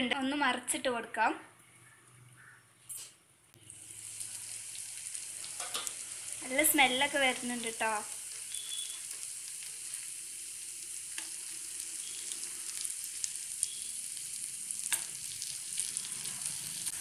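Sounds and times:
prawns sizzling in a pan: 3.6 - 17.0
metal tongs in a pan: 5.4 - 6.0, 14.9 - 15.2.

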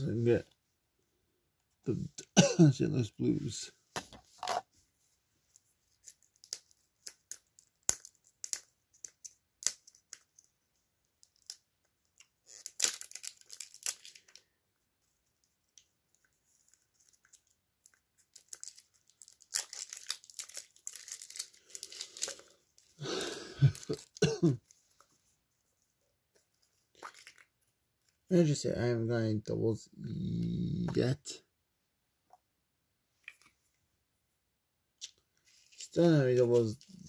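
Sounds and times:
wrapper tearing and crinkling: 6.0 - 10.2, 12.4 - 14.4, 16.7 - 24.3, 26.9 - 27.5.

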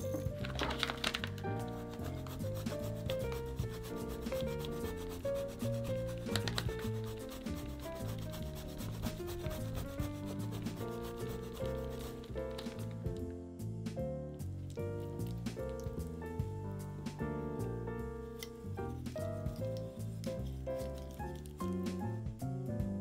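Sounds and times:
soft background music: 0.0 - 23.0
cheese grater scraping: 1.8 - 12.3.

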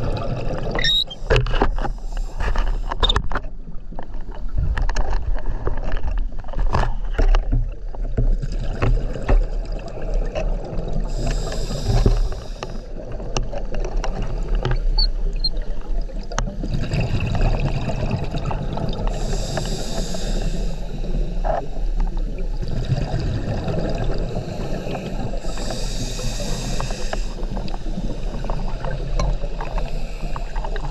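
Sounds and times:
exhaled bubbles rushing: 0.0 - 1.3, 15.3 - 19.3, 22.2 - 25.5.

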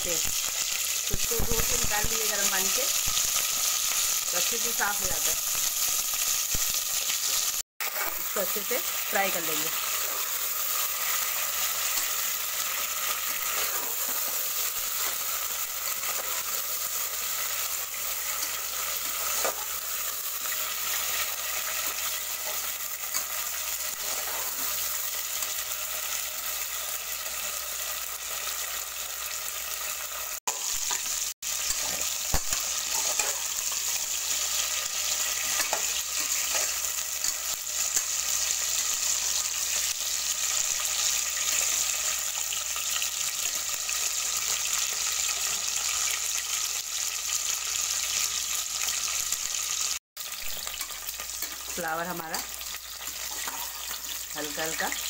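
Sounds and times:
vegetables sizzling in a pot: 0.0 - 55.0
metal spoon clinking and scraping: 9.7 - 24.9, 30.5 - 39.0, 50.6 - 51.8, 52.4 - 54.2.

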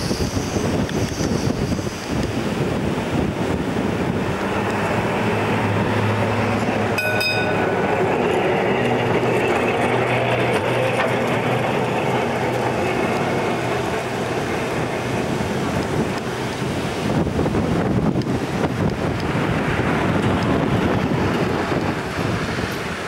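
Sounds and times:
tram passing with wheel noise: 0.0 - 23.0
tram bell ringing: 4.7 - 16.8.

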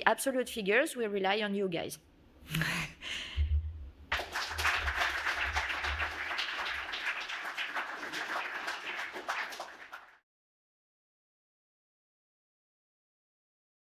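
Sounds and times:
audience applauding: 4.1 - 10.2.

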